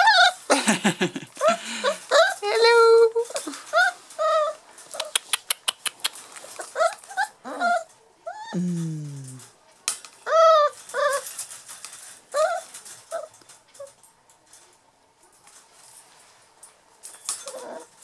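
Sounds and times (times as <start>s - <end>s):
puppies whining and yipping: 0.0s - 0.5s, 1.4s - 5.1s, 6.6s - 8.6s, 10.2s - 11.4s, 12.3s - 14.0s, 17.4s - 17.9s
clicks of paws on wire pen: 3.2s - 8.0s, 9.8s - 18.0s.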